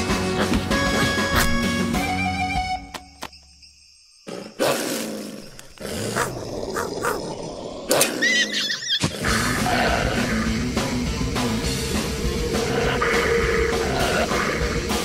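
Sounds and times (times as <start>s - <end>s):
cartoon background music: 0.0s - 3.2s, 8.2s - 15.0s
noisy animal-like roar: 4.6s - 10.6s, 12.1s - 15.0s.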